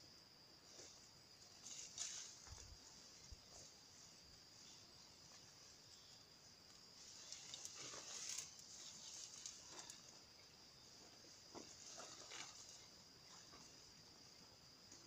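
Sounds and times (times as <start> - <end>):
high-pitched insect chorus: 0.0 - 15.0
rustling of brush and plastic suit: 1.5 - 3.7, 6.8 - 10.2, 11.5 - 13.7.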